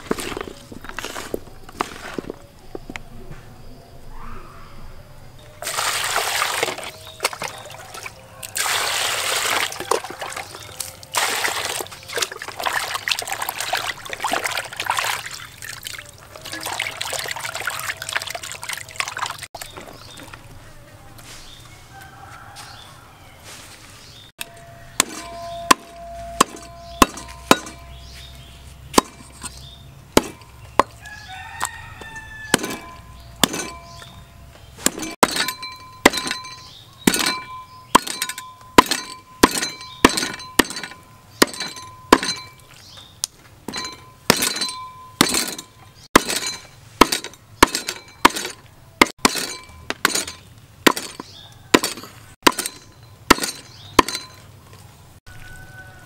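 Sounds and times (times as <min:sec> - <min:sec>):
rooster crowing: 0:07.0 - 0:08.6, 0:16.0 - 0:18.5, 0:21.7 - 0:23.6, 0:24.4 - 0:27.0, 0:30.9 - 0:33.2, 0:51.2 - 0:52.4, 0:55.3 - 0:56.0
cleaver chopping meat and bone: 0:24.9 - 0:28.0, 0:28.9 - 0:34.1, 0:34.8 - 0:42.6, 0:43.7 - 0:54.4.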